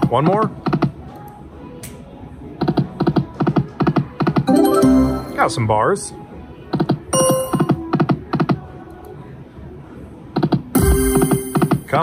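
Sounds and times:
electronic tones: 4.5s - 5.6s.

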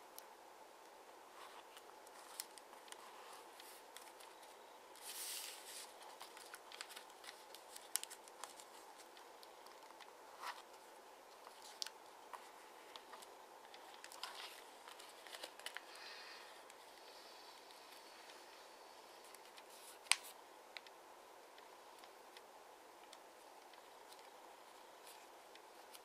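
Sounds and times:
faint background hum: 0.0s - 26.0s
paper being folded: 1.4s - 18.4s.

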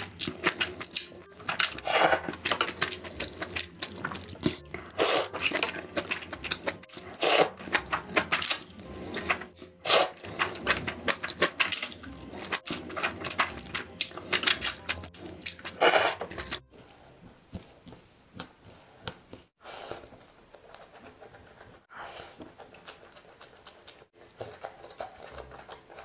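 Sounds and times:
noodles being slurped: 0.0s - 16.6s.

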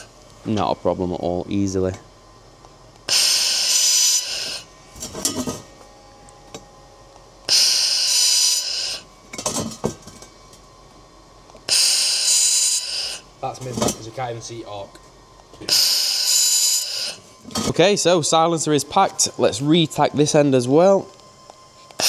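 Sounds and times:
laser welder hissing bursts: 3.1s - 4.7s, 7.5s - 9.1s, 11.7s - 13.5s, 15.6s - 17.4s.

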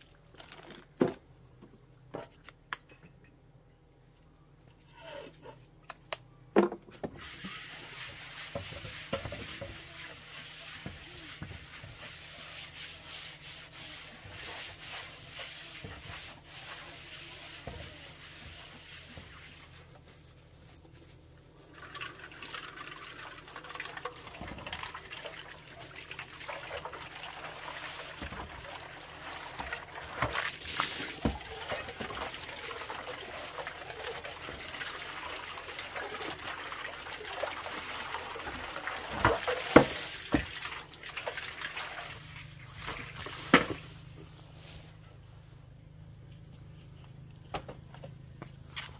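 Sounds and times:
liquid trickling and sloshing: 21.6s - 44.0s.

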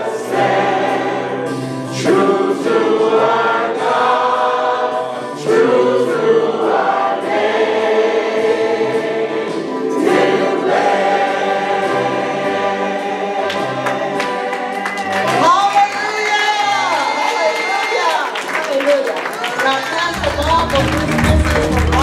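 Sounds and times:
choir singing gospel song: 0.0s - 17.8s.

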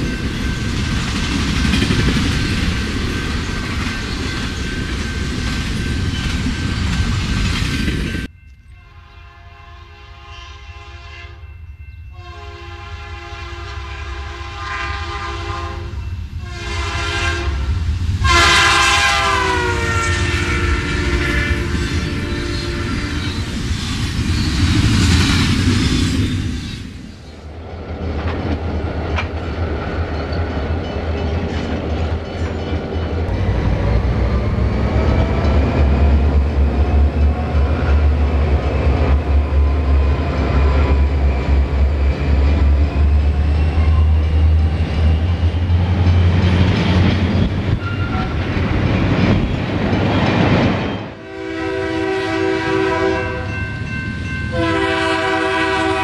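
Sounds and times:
diesel locomotive engine rumble: 0.0s - 8.7s, 10.7s - 56.0s
freight train rolling by: 0.0s - 56.0s
locomotive horn: 8.8s - 11.5s, 12.1s - 23.4s, 51.2s - 53.6s, 54.5s - 56.0s.

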